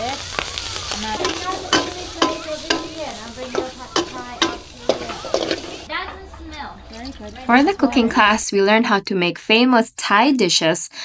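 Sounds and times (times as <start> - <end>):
food sizzling in a pan: 0.0 - 8.3
metal spatula scraping a pan: 0.8 - 5.9.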